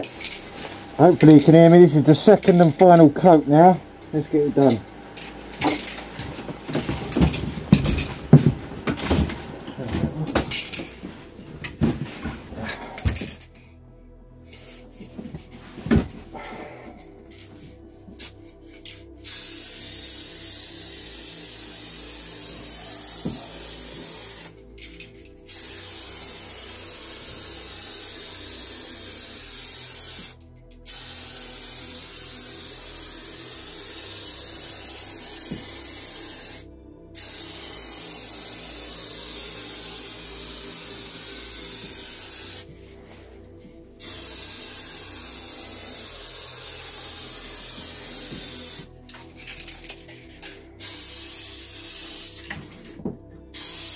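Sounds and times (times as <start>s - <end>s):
paint spraying hiss: 17.5s - 24.6s, 25.4s - 43.3s, 44.0s - 49.8s, 50.5s - 52.8s, 53.5s - 53.9s.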